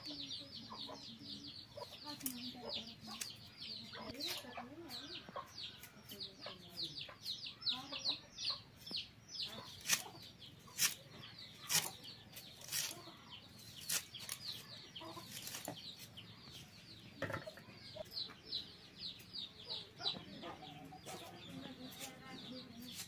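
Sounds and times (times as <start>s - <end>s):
birds chirping: 0.0s - 23.0s
onion slicing on blade: 9.8s - 10.1s, 10.7s - 11.0s, 11.7s - 12.0s, 12.6s - 13.0s, 13.8s - 14.5s.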